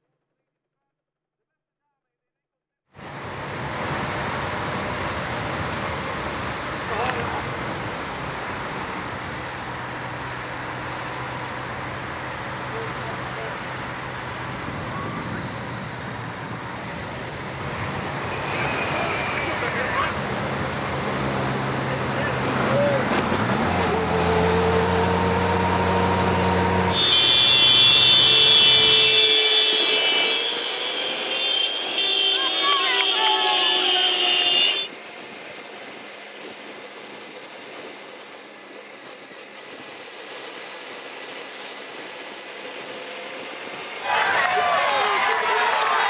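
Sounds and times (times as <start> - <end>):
outdoor road noise: 2.9 - 46.0
motorbike engine hum: 3.0 - 30.5
race vehicles running: 3.0 - 46.0.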